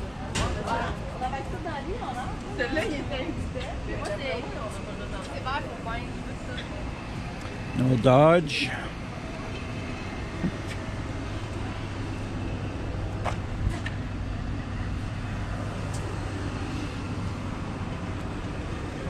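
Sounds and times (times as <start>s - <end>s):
vehicle engine idling: 0.0s - 19.0s.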